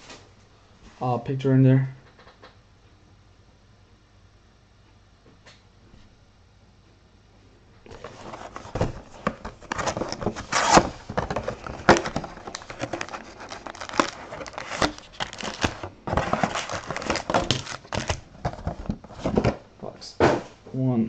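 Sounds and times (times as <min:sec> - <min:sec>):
plastic wrappers tearing and crinkling: 0:07.9 - 0:19.5.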